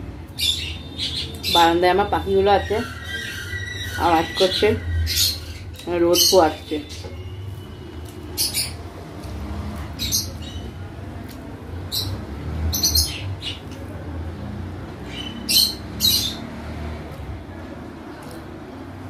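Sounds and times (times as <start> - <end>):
birds squawking: 0.4 - 7.4, 8.3 - 8.9.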